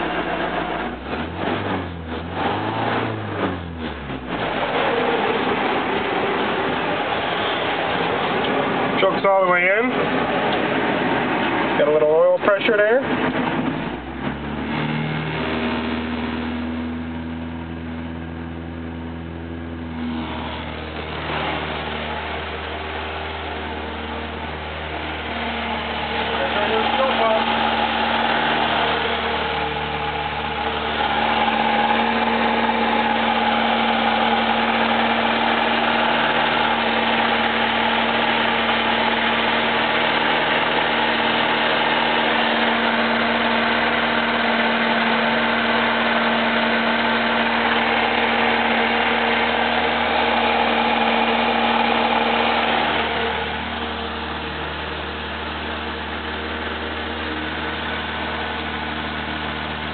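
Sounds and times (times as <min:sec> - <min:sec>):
boat engine idling: 0:16.8 - 0:59.9.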